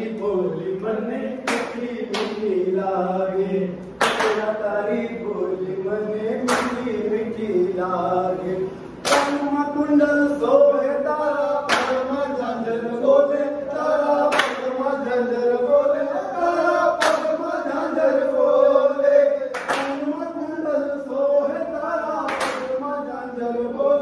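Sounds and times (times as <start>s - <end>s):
voices singing devotional song: 0.0s - 24.0s
sharp hand clap: 1.4s - 2.5s, 3.8s - 4.6s, 6.4s - 6.9s, 9.0s - 9.6s, 11.7s - 12.1s, 14.3s - 14.8s, 17.0s - 17.4s, 19.5s - 20.1s, 22.2s - 22.8s.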